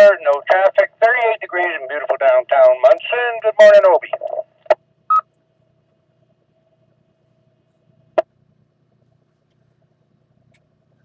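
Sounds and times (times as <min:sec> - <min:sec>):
faint steady radio tone: 0:00.0 - 0:05.7
receiver low hum: 0:00.0 - 0:11.0.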